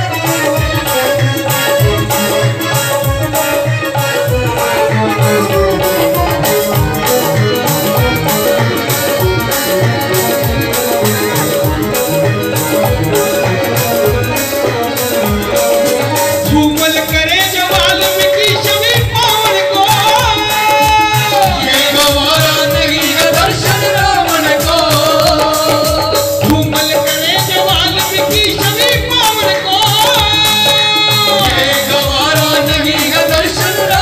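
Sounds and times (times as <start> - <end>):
hand drum percussion: 0.0 - 34.0
men singing into microphones: 0.0 - 34.0.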